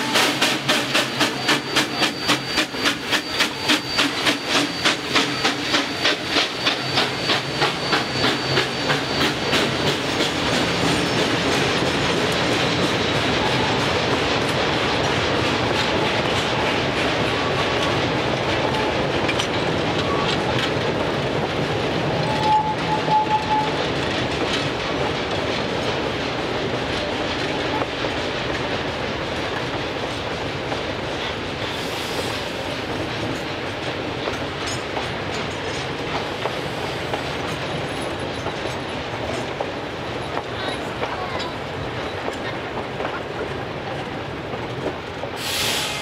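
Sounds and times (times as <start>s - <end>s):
train rumble: 0.0s - 46.0s
train wheels clicking over rail joints: 0.0s - 46.0s
high squeal: 0.3s - 11.7s, 22.2s - 23.8s.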